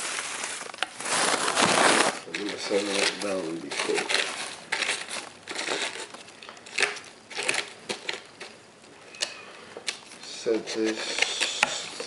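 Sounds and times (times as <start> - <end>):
paper and plastic wrapping crinkling: 0.0 - 8.9.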